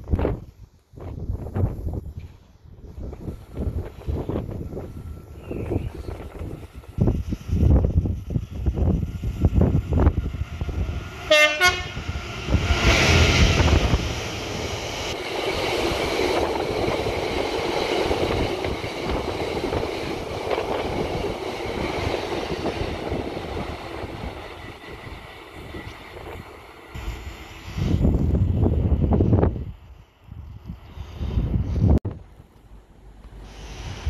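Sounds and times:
train passing at speed: 0.0 - 34.0
train horn blast: 11.2 - 12.0.

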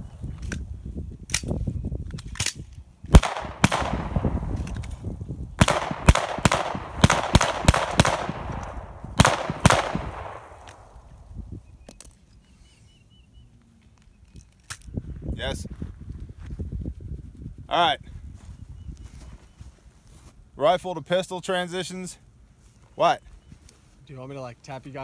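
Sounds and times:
gunshots with echo: 3.1 - 4.7, 5.6 - 11.0.

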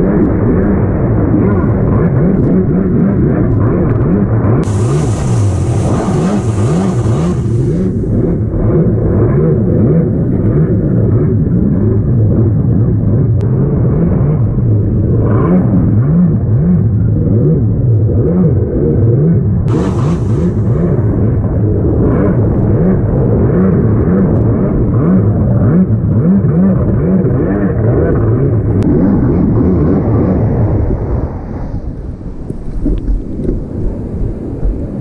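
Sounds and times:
burst of hissing noise: 4.6 - 8.3, 19.7 - 21.3
wind and water rushing: 4.6 - 8.8, 19.7 - 21.5
jet ski engine revving: 4.6 - 11.3, 15.2 - 28.7.

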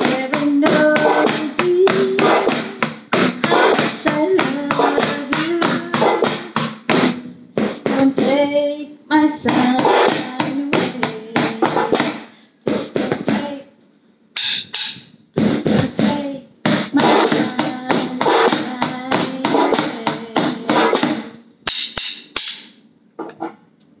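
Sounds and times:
drumsticks tapping a rhythm: 0.0 - 8.4, 9.4 - 13.6, 14.4 - 24.0.

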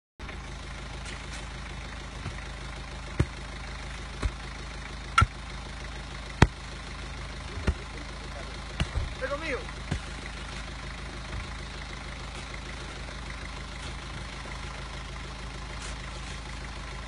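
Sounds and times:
engine idling: 0.2 - 17.0
sharp knocks: 8.8 - 9.2.

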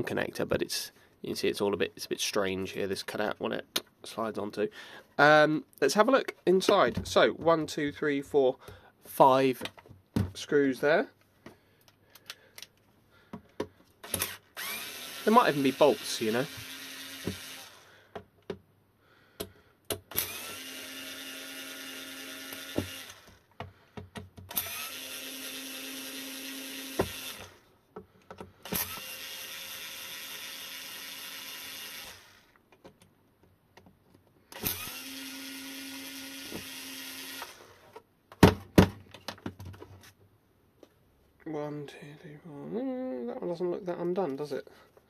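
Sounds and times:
cordless screwdriver whirring: 14.0 - 17.9, 20.1 - 23.5, 24.5 - 27.7, 28.6 - 32.6, 34.5 - 38.0.

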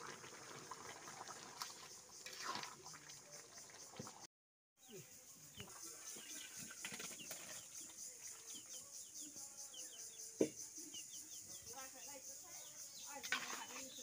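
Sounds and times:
birds chirping: 4.8 - 14.0.

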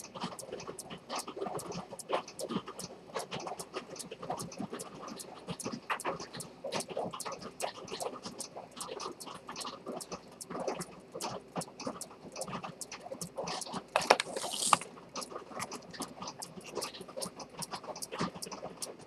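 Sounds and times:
watch case clatter and scrape: 14.0 - 14.9.

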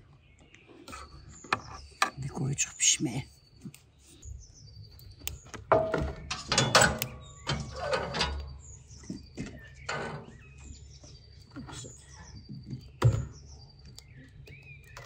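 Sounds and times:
small birds chirping: 0.0 - 15.0
metal stove door clanking: 5.6 - 8.6, 9.5 - 10.4.

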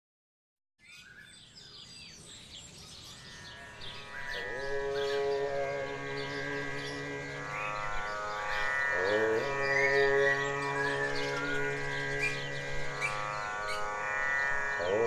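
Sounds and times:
birds chirping: 0.8 - 15.0
musical drone: 3.5 - 15.0.

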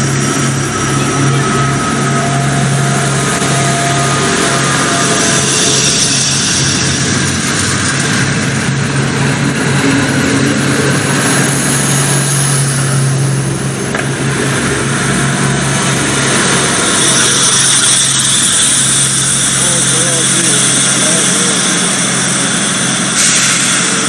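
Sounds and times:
diesel train engine running: 0.0 - 24.0
train wheels rolling on rails: 0.0 - 24.0.

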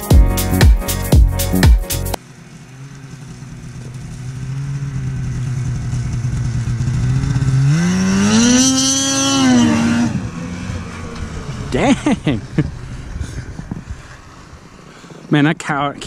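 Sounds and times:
intro music: 0.0 - 2.2
snowmobile engine running: 2.3 - 15.2.

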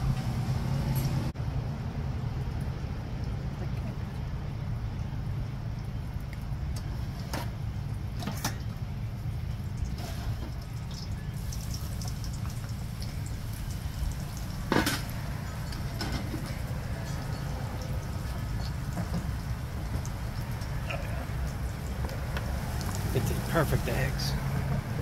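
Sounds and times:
eggs sizzling in grease: 9.3 - 24.7.

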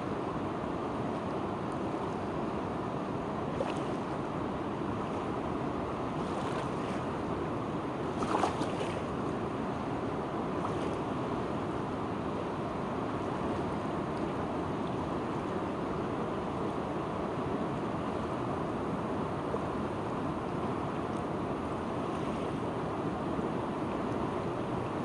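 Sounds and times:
water splash: 8.2 - 9.0.

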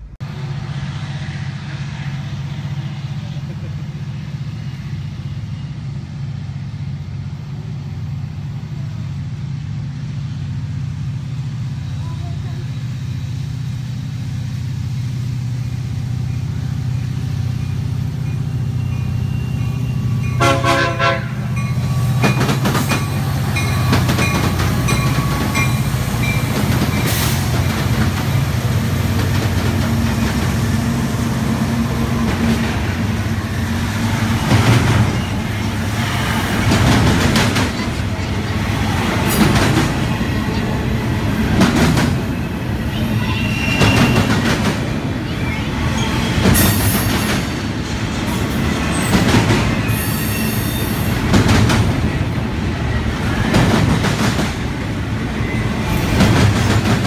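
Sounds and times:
diesel locomotives rumbling: 0.0 - 57.0
train horn blast: 20.3 - 21.6
train wheels clanking over rail joints: 21.5 - 30.9, 34.1 - 40.7, 46.0 - 52.4, 55.8 - 57.0.

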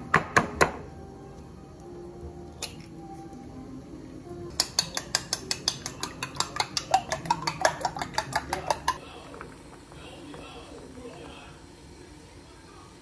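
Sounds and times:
metal utensil clinking in bowl: 4.5 - 9.0.

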